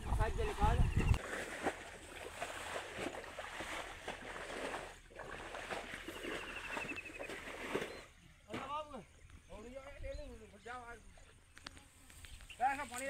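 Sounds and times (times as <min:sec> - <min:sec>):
footsteps rustling through grass: 0:11.8 - 0:13.0.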